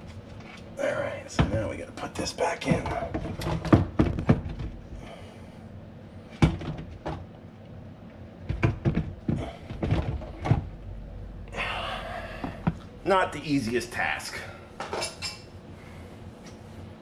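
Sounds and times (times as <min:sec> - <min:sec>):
plastic parts knocking and clunking: 0:02.7 - 0:05.0, 0:06.4 - 0:07.3, 0:08.4 - 0:10.7.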